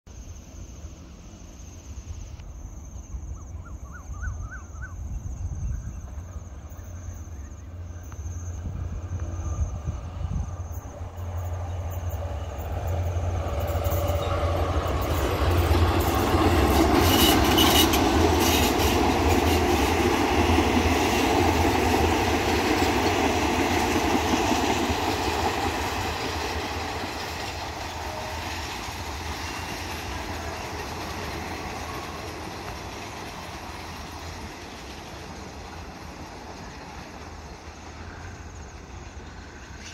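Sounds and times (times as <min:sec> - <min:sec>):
diesel train rumble: 0:00.1 - 0:39.9
wheels clicking on rails: 0:10.8 - 0:39.9.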